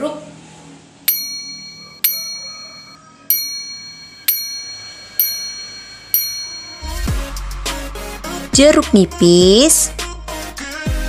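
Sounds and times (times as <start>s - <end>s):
small bell ringing: 1.1s - 7.1s.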